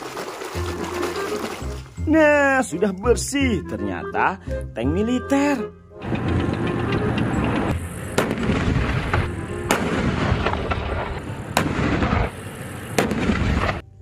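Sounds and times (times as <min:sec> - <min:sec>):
rumbling engine and tracks: 0:02.8 - 0:14.0
tank cannon firing: 0:07.8 - 0:13.8.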